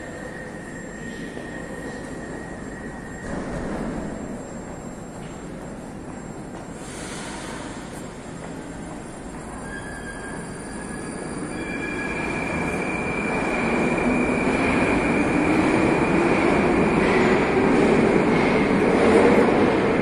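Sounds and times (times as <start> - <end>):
metro train running: 0.0 - 20.0
high wheel squeal: 9.4 - 16.2.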